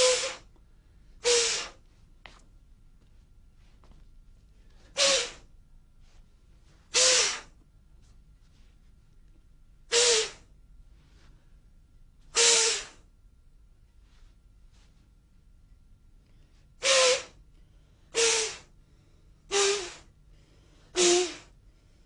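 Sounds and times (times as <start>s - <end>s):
sharp forceful breaths: 16.8s - 22.0s.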